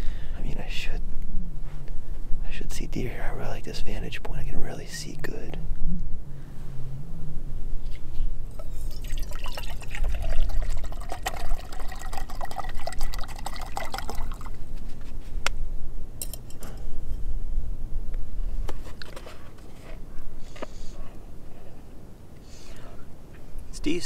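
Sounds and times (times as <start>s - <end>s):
water pouring into metal pot: 8.5s - 14.6s.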